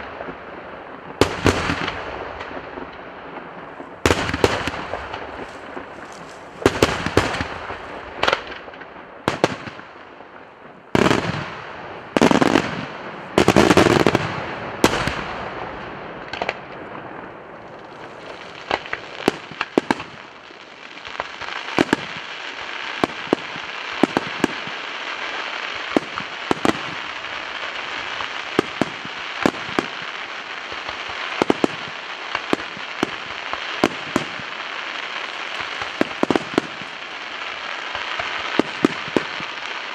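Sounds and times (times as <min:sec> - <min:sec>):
fireworks bangs: 0:00.0 - 0:39.9
fireworks crackling hiss: 0:00.0 - 0:39.9.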